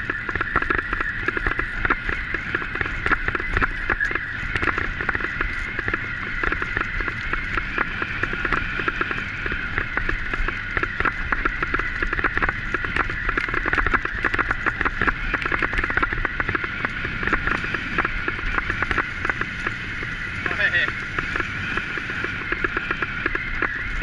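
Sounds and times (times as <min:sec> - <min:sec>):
bicycle tyre whir: 0:00.0 - 0:24.0
low rumble: 0:00.0 - 0:24.0
wheels crackling on gravel: 0:00.0 - 0:24.0.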